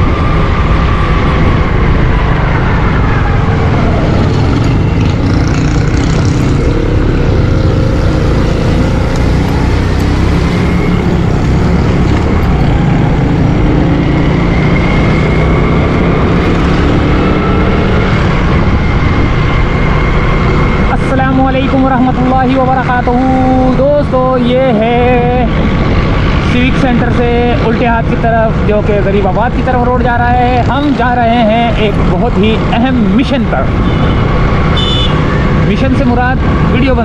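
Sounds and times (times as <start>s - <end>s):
road and wind rumble: 0.0s - 37.0s
motorcycle engine running: 4.1s - 20.7s.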